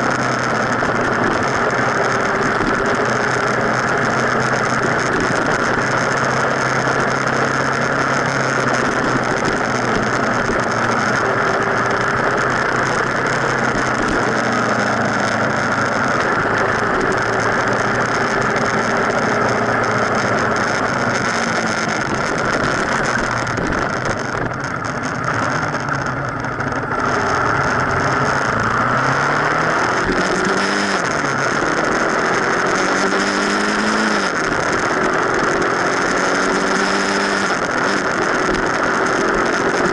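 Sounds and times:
motorcycle engine revving: 0.0 - 39.9
wind and road noise: 0.0 - 39.9.

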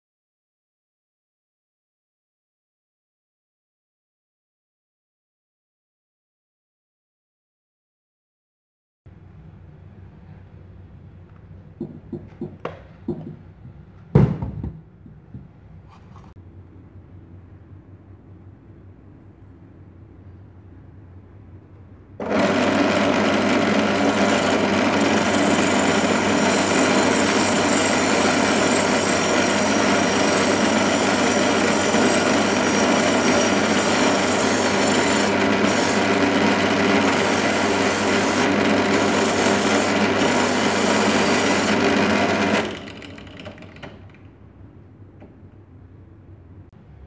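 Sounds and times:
drill press motor hum: 22.2 - 44.4.

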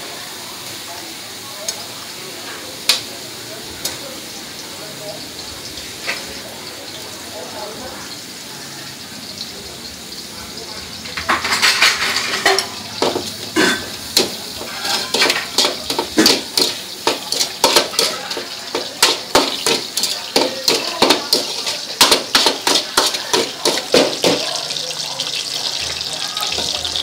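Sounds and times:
food sizzling: 0.0 - 27.0
metal spatula scraping a wok: 11.1 - 24.8.

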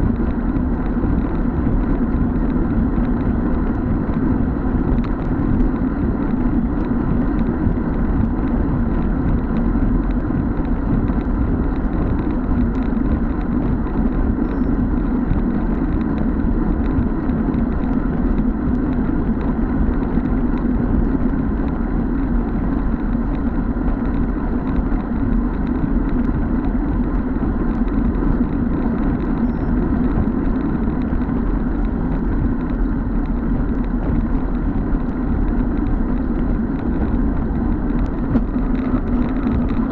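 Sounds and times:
bicycle road noise: 0.0 - 39.9
wind rush on microphone: 0.0 - 39.9.

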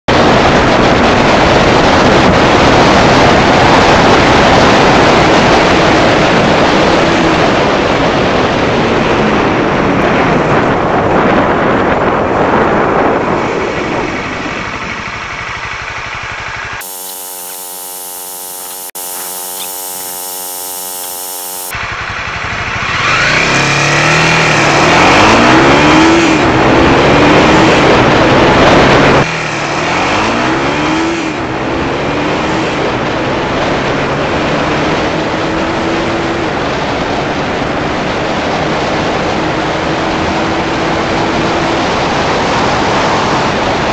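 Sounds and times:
wind rush on microphone: 0.1 - 15.2
motorcycle engine revving: 14.1 - 43.6.

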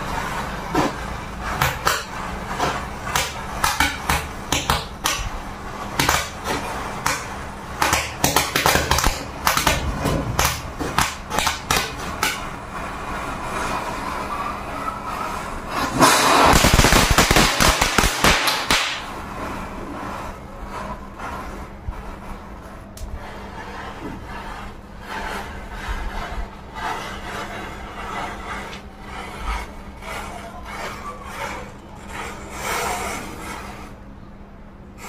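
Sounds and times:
firecrackers crackling: 15.3 - 20.4
matches flaring and crackling: 15.8 - 19.2.

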